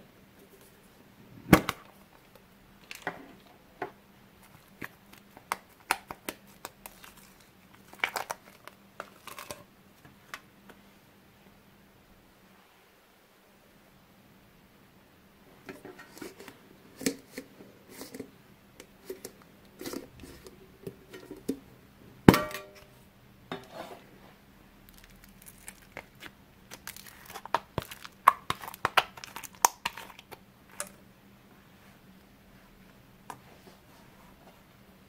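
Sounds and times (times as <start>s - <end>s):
sticky slime crackles and pops: 4.4s - 9.5s, 24.8s - 30.9s.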